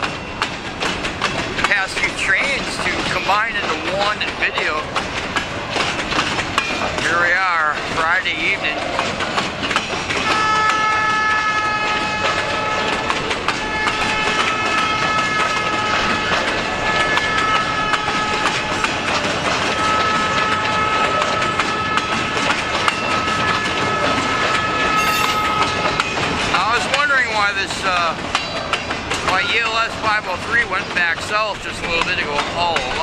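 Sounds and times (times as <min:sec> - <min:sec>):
train wheels clattering over rail joints: 0:00.0 - 0:20.8, 0:26.7 - 0:33.0
high-pitched wheel squeal: 0:25.0 - 0:26.1.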